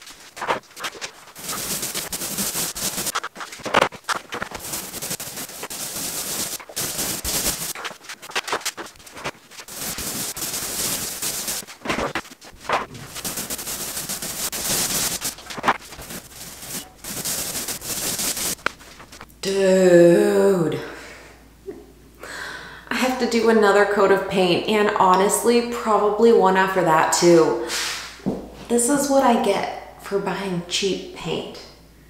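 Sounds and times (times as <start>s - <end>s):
paint roller crackling on wall: 0.0s - 19.3s.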